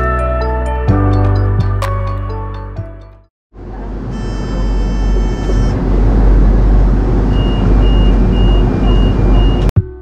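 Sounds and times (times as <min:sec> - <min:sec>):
funicular car rumbling: 0:03.6 - 0:09.7.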